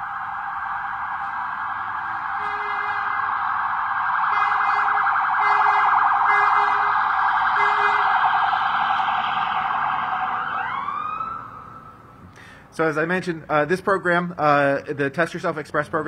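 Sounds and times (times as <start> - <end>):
emergency siren warbling yelp: 0.0 - 12.2
short horn blasts: 2.4 - 3.2, 4.3 - 7.0, 7.6 - 8.1.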